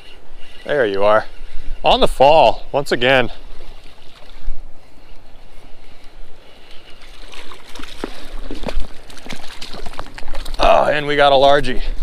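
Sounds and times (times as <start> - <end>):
fish splashing at water surface: 7.0 - 10.6.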